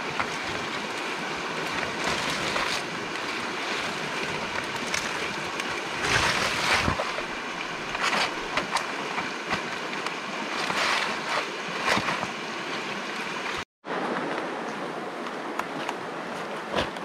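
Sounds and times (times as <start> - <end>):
rustling and crunching: 0.0 - 13.6
stream rushing: 0.0 - 17.0.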